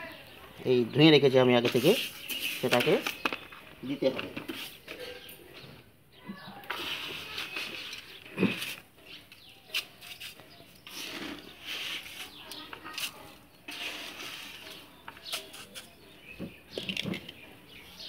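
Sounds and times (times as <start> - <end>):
sand rustling: 6.7 - 8.9, 9.7 - 16.0.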